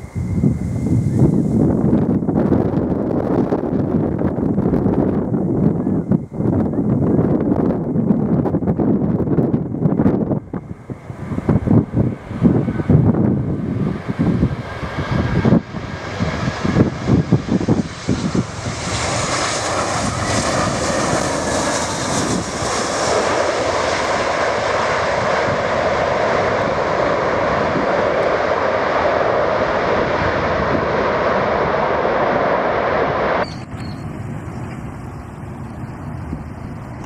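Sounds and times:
jet engines roaring: 0:00.0 - 0:37.0
wind buffeting microphone: 0:00.0 - 0:37.0.

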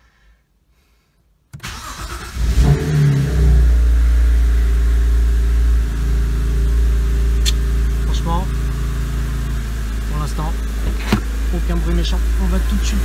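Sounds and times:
car engine cranking: 0:01.6 - 0:03.1, 0:07.4 - 0:13.0
car engine idling: 0:03.5 - 0:13.0.

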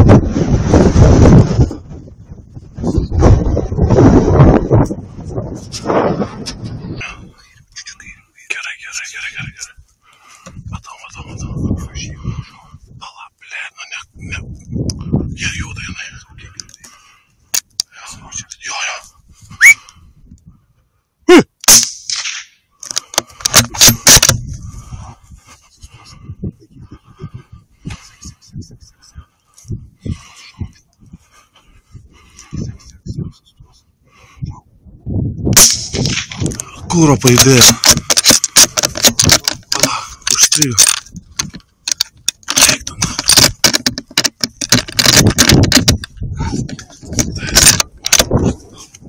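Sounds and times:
rifle shot: 0:21.6 - 0:22.6, 0:35.6 - 0:36.4
rifle handling clicks and knocks: 0:22.2 - 0:24.4, 0:37.3 - 0:48.4.

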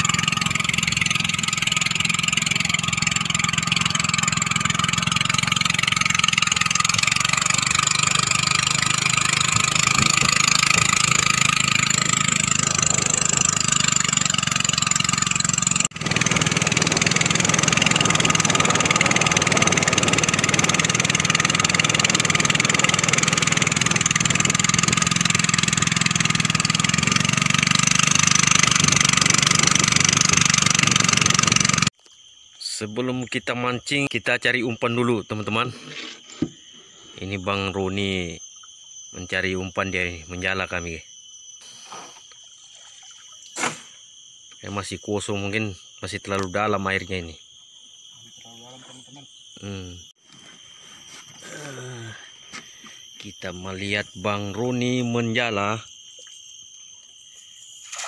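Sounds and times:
boat engine running: 0:00.0 - 0:32.0.

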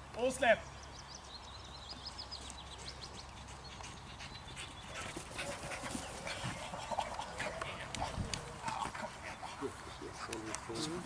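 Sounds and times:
small bird chirping: 0:00.6 - 0:05.2
dog panting: 0:03.4 - 0:11.0.

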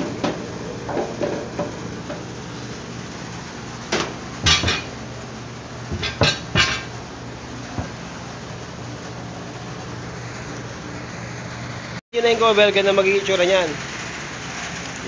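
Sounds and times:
steady low hum: 0:00.0 - 0:12.0
sheet metal clinks and knocks: 0:04.4 - 0:04.9.

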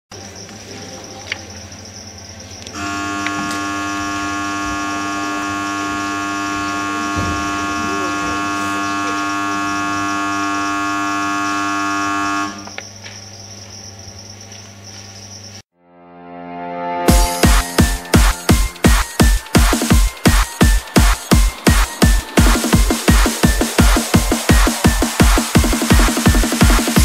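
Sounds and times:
electric buzzer: 0:02.7 - 0:12.8, 0:17.1 - 0:27.0.

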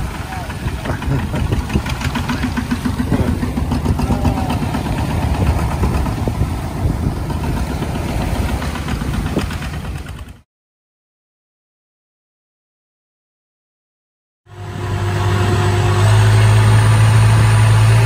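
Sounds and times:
diesel engine chugging: 0:00.0 - 0:10.4, 0:14.5 - 0:18.0.

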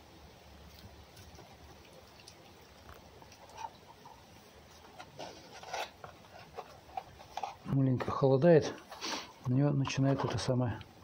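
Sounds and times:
low background noise: 0:00.0 - 0:11.0
fox eating: 0:00.5 - 0:07.8.

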